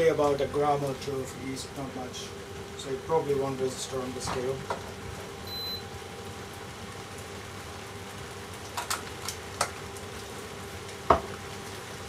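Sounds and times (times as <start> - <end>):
faint hum: 0.0 - 8.4.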